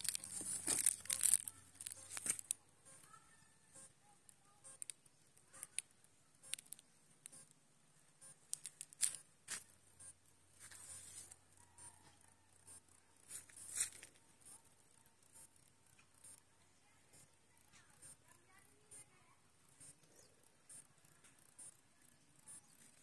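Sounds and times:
footsteps on dry grass and leaves: 0.0 - 2.5, 10.6 - 11.4, 13.3 - 14.2.

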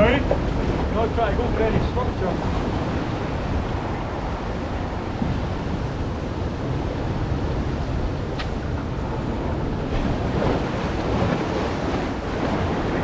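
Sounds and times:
waves on rocky shoreline: 0.0 - 13.0
wind buffeting microphone: 0.0 - 13.0.

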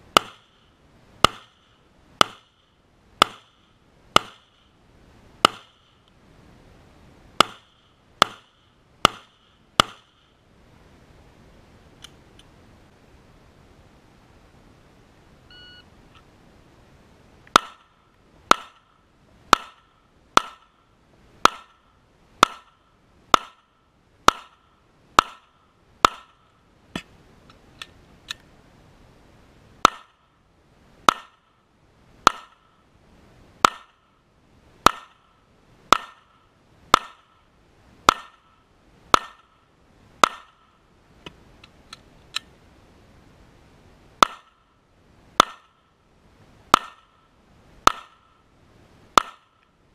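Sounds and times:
shot timer beep: 15.5 - 15.9.

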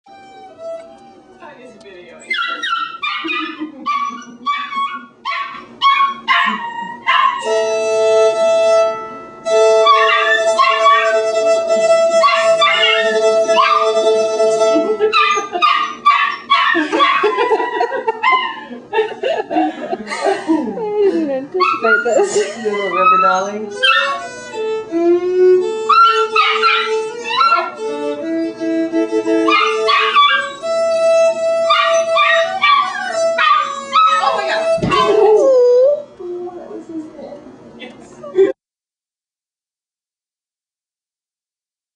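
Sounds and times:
fiddle playing long chord: 0.1 - 1.9, 7.4 - 15.4, 23.6 - 36.2
puppy yipping howls: 2.2 - 7.6, 9.8 - 11.3, 12.1 - 14.2, 14.8 - 18.7, 21.6 - 24.4, 25.9 - 27.9, 29.4 - 36.8.

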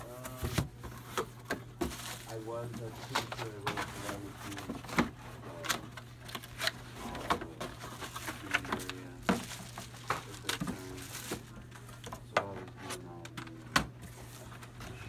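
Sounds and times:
cardboard box crackling and rustling: 0.0 - 11.8.

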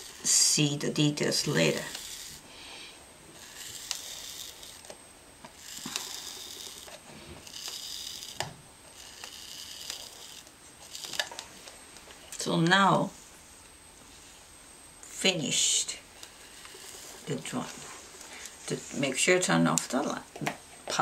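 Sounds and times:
hot-wire cutter hissing through foam: 5.6 - 8.4.

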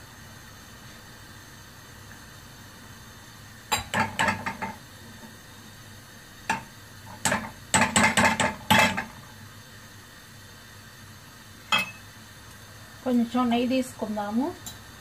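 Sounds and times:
gas burner hissing: 0.0 - 15.0
metal spoon tapping a pan: 3.7 - 4.8, 6.5 - 9.1, 11.7 - 12.0.

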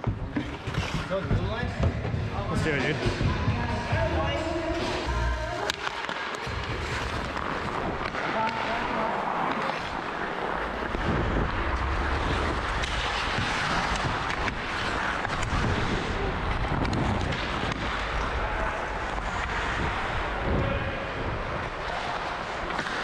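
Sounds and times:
skate blades scraping ice: 0.0 - 1.4, 4.7 - 23.0
wind buffeting microphone: 10.7 - 21.8.

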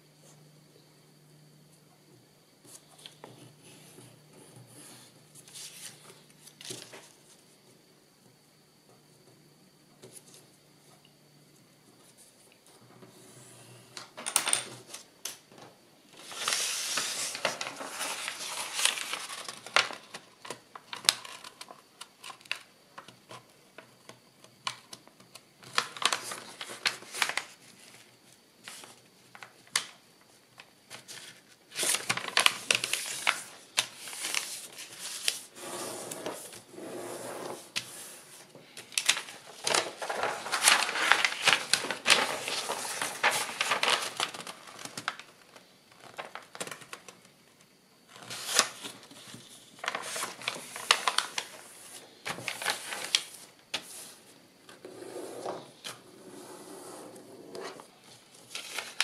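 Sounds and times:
paper rustling and crinkling: 5.4 - 7.5, 16.2 - 23.9, 24.6 - 30.0, 30.6 - 36.7, 37.4 - 47.3, 48.1 - 54.2, 57.5 - 59.0.

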